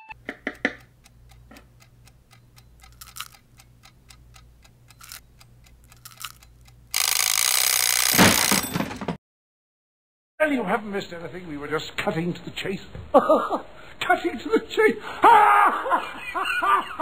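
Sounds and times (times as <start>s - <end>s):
alarm clock ticking: 0.1s - 8.7s.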